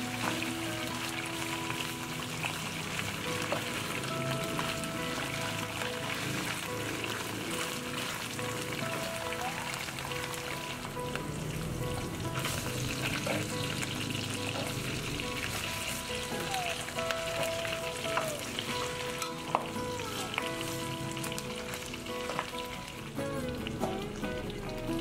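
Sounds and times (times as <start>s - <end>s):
meat sizzling in oil: 0.0s - 25.0s.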